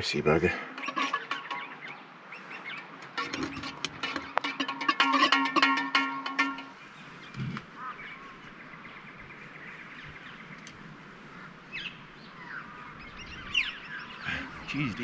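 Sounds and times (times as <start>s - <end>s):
outdoor background hiss: 0.0s - 15.0s
short bird calls: 6.8s - 15.0s.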